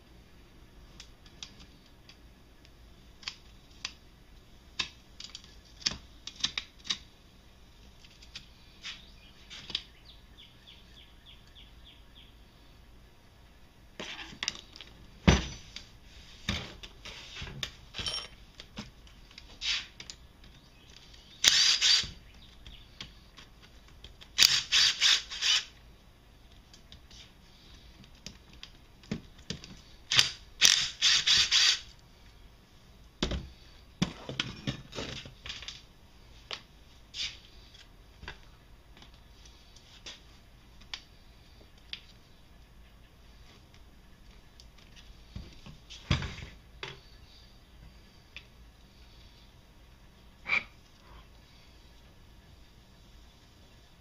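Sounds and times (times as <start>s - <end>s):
metal tools clinking on metal: 18.0s - 18.4s
cordless drill bursts: 21.4s - 22.2s, 24.4s - 25.7s, 30.1s - 31.8s.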